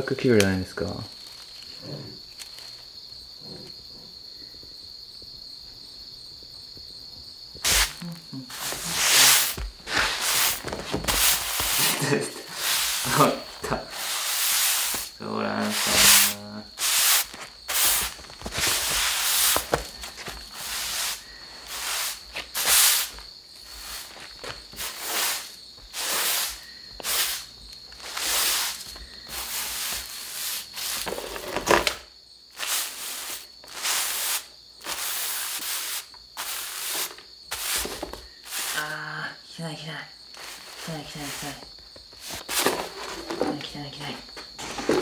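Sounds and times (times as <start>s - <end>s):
broom sweeping a mat: 7.6s - 31.7s, 32.5s - 39.0s, 40.3s - 43.6s, 44.4s - 45.0s.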